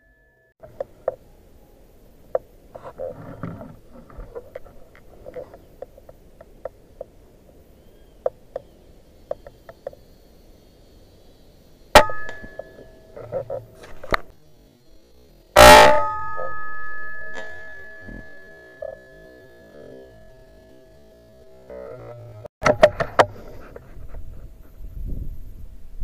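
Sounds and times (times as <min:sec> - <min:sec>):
faint ticks: 0:08.2 - 0:10.2.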